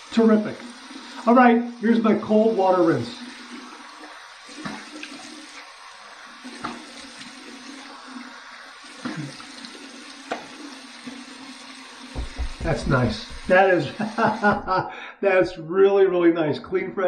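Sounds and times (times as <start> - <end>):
sink tap running: 0.0 - 14.8
water splashing on face: 12.1 - 14.7.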